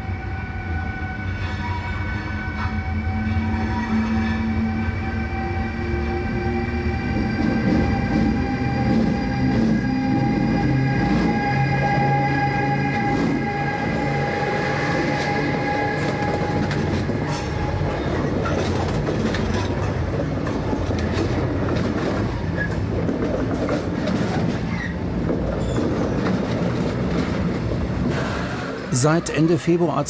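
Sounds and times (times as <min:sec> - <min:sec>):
electric locomotive whine: 0:00.0 - 0:29.8
freight wagons rumbling past: 0:06.9 - 0:30.0.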